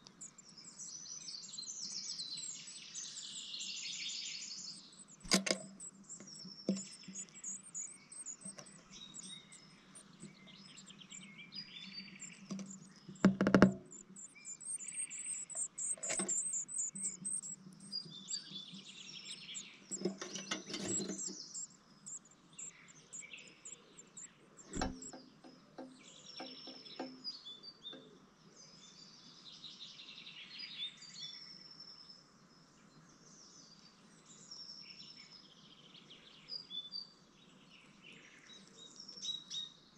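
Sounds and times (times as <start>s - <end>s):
nestlings begging chirps: 0.0s - 27.8s
bird knocking in nest box: 5.2s - 5.7s, 12.5s - 14.0s, 16.0s - 16.4s, 19.9s - 21.3s, 24.7s - 25.3s.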